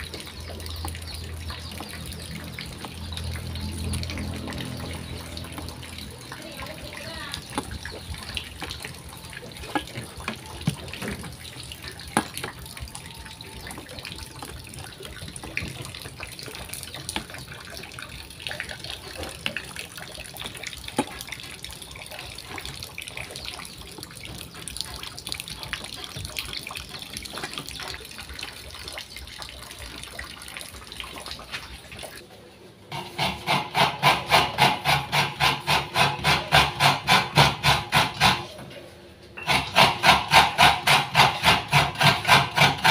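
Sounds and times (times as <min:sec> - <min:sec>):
dough squishing in steel bowl: 0:00.0 - 0:28.3
coconut scraping rasp: 0:32.9 - 0:38.6, 0:39.4 - 0:42.9.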